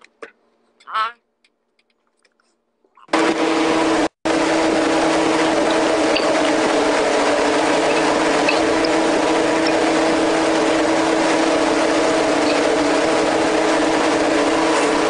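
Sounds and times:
loud humming machine noise: 3.1s - 15.0s.

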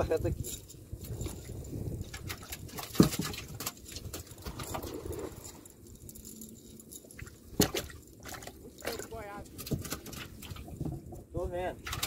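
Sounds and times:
wind rumble on microphone: 0.0s - 8.0s, 9.1s - 12.0s
cast net knocking in wooden canoe: 2.3s - 3.7s, 7.5s - 7.9s, 9.6s - 11.3s.

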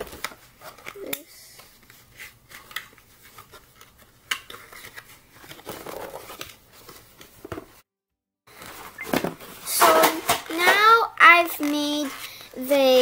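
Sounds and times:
cardboard rustling and clicking: 1.8s - 7.8s
cardboard scraping: 4.6s - 7.6s.

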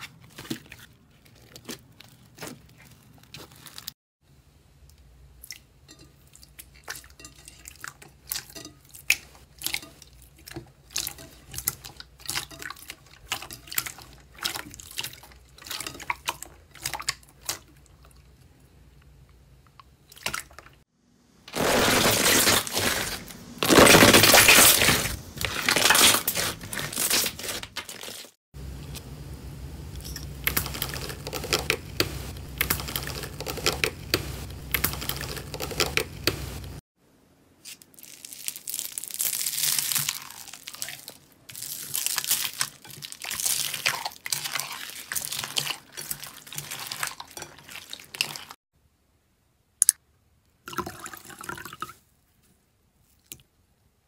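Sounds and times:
foil crinkling and tearing: 0.0s - 4.0s, 21.5s - 28.4s, 37.6s - 48.5s
low steady hum: 28.6s - 37.5s.

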